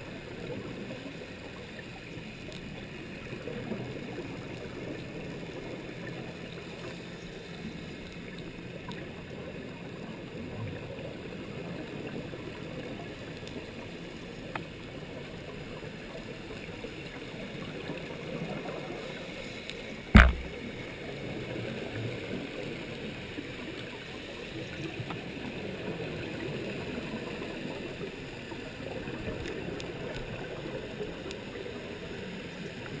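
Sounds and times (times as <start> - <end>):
muffled underwater water noise: 0.0 - 33.0
sharp knock: 20.2 - 20.6.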